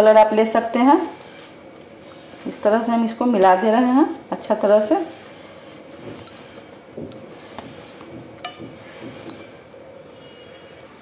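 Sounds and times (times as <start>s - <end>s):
hand kneading soft dough: 0.0s - 9.4s
metallic clinks from plate: 6.2s - 8.6s, 9.2s - 9.6s.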